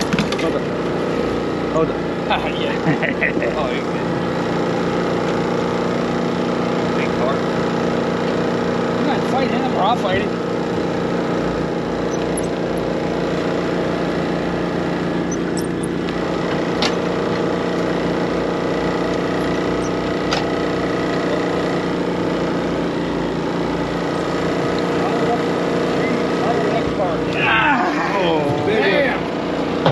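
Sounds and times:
small engine humming: 0:00.0 - 0:29.9
sharp clicks: 0:12.0 - 0:13.3, 0:15.2 - 0:17.5.

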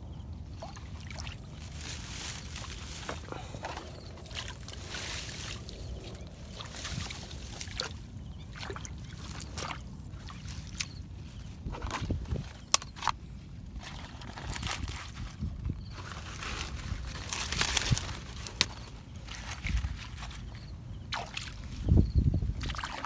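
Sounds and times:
muddy water sloshing: 0:00.4 - 0:15.4, 0:16.0 - 0:23.0
rustling of plants: 0:00.4 - 0:23.0
light water splashes: 0:00.5 - 0:11.0, 0:21.1 - 0:21.9, 0:22.6 - 0:23.0.

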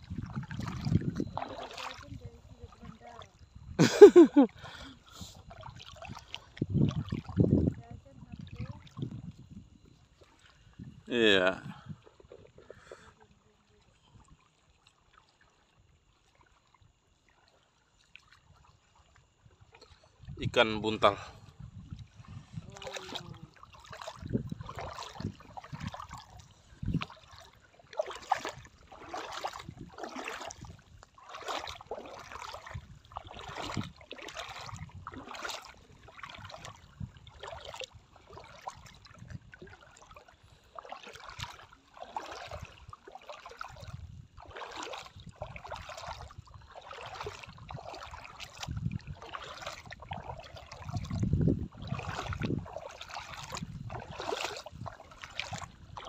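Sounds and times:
shallow seawater splashing: 0:00.0 - 0:03.4, 0:22.1 - 0:56.0.

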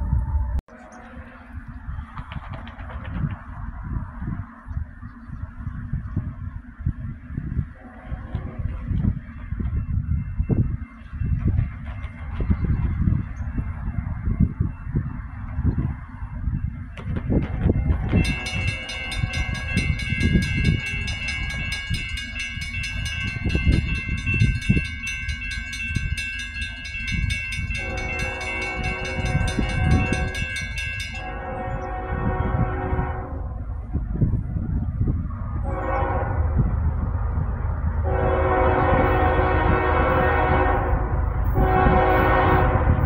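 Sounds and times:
heavy low rumble: 0:00.0 - 0:43.0
locomotive air horn: 0:07.8 - 0:08.3, 0:27.7 - 0:33.7, 0:35.6 - 0:36.7, 0:38.0 - 0:43.0.

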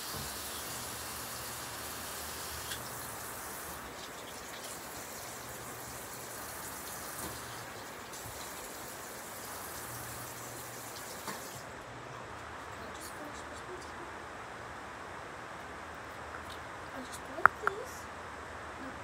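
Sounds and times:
faint ticks and drips: 0:00.0 - 0:11.6
running water: 0:00.0 - 0:11.8.

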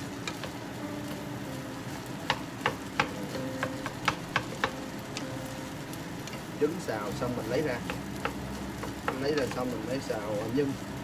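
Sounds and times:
light sizzle: 0:00.0 - 0:11.0
spatulas knocking against pan: 0:02.3 - 0:04.8.

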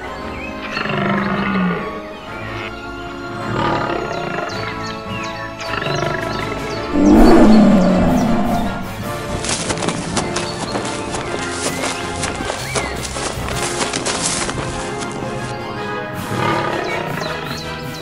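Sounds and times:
lion roaring: 0:07.0 - 0:09.0.

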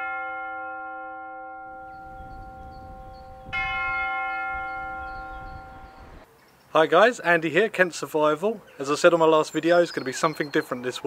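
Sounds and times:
church bell tolling: 0:00.0 - 0:06.2.

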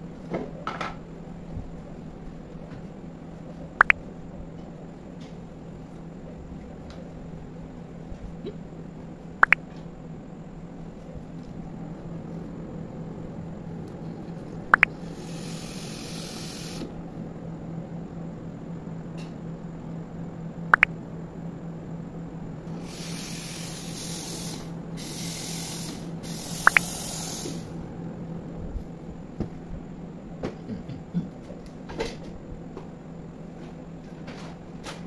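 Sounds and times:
low hum: 0:00.0 - 0:22.9
steam wand hissing: 0:15.0 - 0:16.9, 0:22.8 - 0:27.8
sharp ticks: 0:26.6 - 0:27.0.

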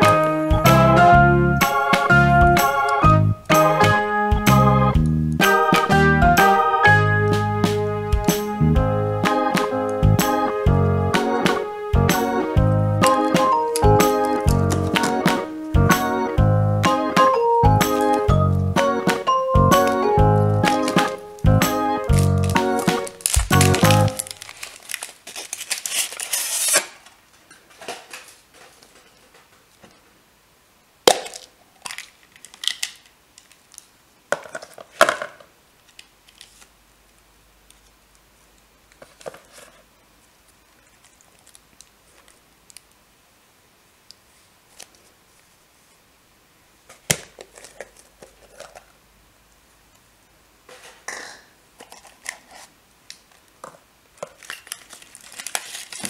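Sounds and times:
plastic wrapping rustling: 0:13.0 - 0:15.7, 0:19.8 - 0:30.0, 0:31.1 - 0:36.7, 0:38.9 - 0:43.0, 0:46.9 - 0:49.0, 0:51.8 - 0:56.0
foil wrapper crinkling: 0:13.1 - 0:15.4, 0:20.6 - 0:21.2, 0:22.0 - 0:29.3, 0:31.2 - 0:33.9, 0:40.7 - 0:42.9, 0:47.0 - 0:48.9, 0:54.2 - 0:56.0
chocolate shell snapping: 0:31.1 - 0:33.5.

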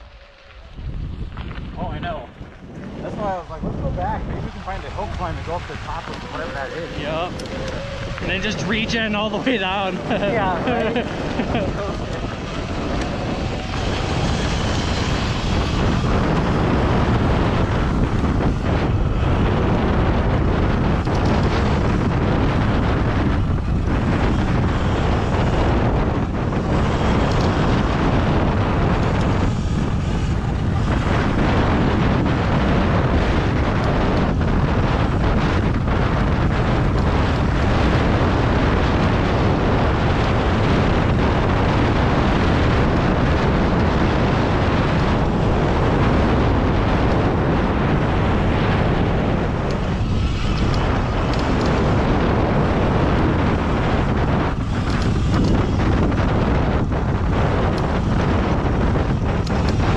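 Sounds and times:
low rumble of ride: 0:00.0 - 0:59.9
wind buffeting microphone: 0:00.0 - 0:59.9.

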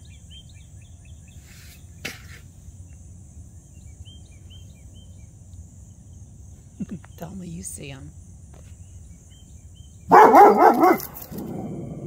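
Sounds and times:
insects droning: 0:00.0 - 0:12.0
songbird chirping: 0:00.0 - 0:12.0
low rumble: 0:11.2 - 0:12.0.

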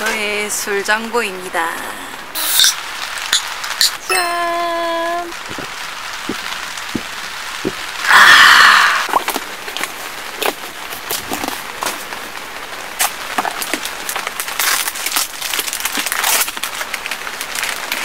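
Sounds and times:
rain hissing on a car: 0:00.2 - 0:04.0, 0:04.8 - 0:18.0
crinkles and clicks: 0:09.1 - 0:12.2, 0:13.0 - 0:18.0
plastic packaging rustling: 0:09.1 - 0:18.0.

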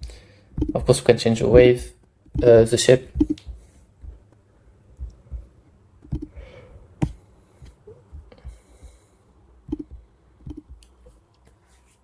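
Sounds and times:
computer mouse clicks: 0:06.0 - 0:06.4, 0:09.7 - 0:11.0.

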